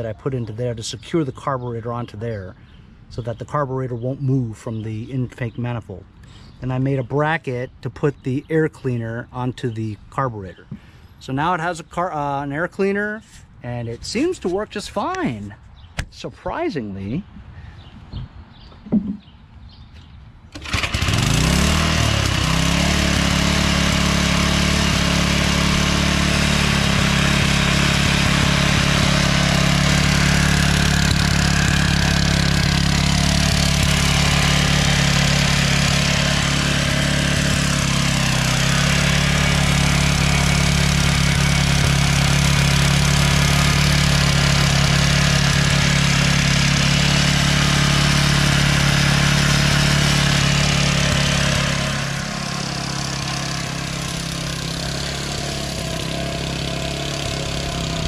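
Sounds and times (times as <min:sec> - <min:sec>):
small engine starting and running: 0:20.5 - 0:58.0.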